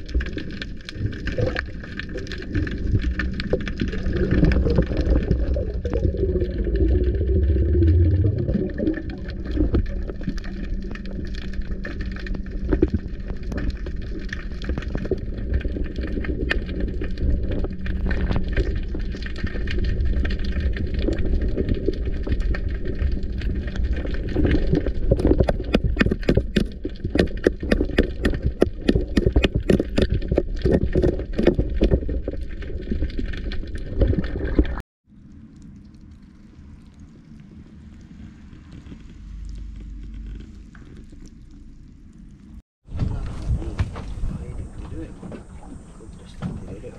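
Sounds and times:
muffled underwater rumble: 0.0 - 46.9
sharp crackling clicks: 7.8 - 37.1.

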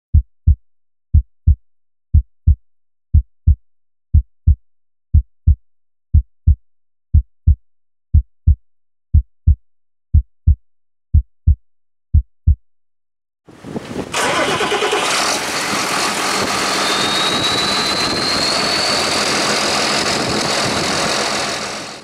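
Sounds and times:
heartbeat thumps: 0.1 - 12.6.

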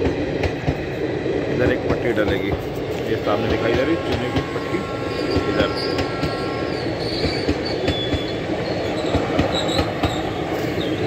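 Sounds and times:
train wheels rumbling on rail: 0.0 - 11.0
wheels squealing: 4.9 - 11.0.

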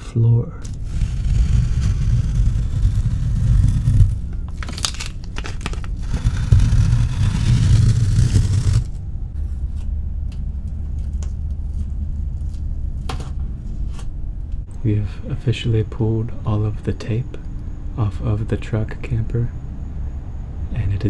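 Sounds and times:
tape crackles and crinkles: 0.6 - 13.1
low rumble: 0.6 - 15.0
tape ripping off floor: 2.0 - 8.9.

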